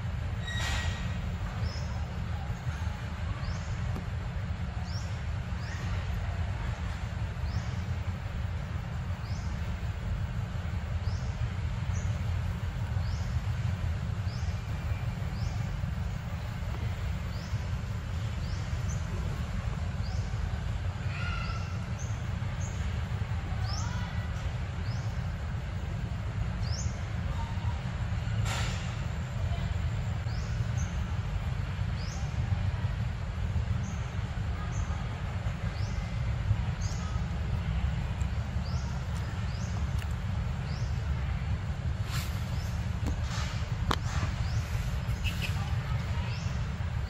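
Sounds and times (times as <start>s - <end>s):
steady low rumble: 0.0s - 47.0s
bird high chirp: 44.4s - 46.6s.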